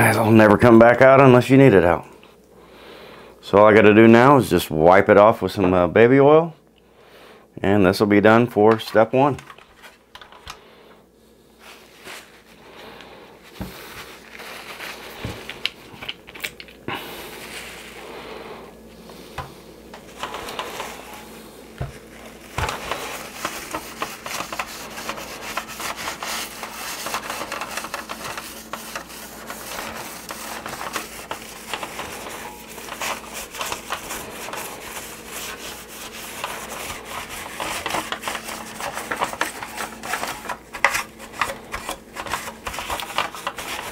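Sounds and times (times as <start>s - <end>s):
rag rubbing on plastic: 19.1s - 43.9s.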